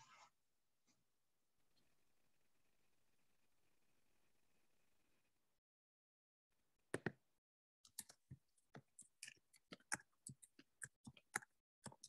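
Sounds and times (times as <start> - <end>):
faint clicks and taps: 6.9 - 7.2, 7.8 - 12.0.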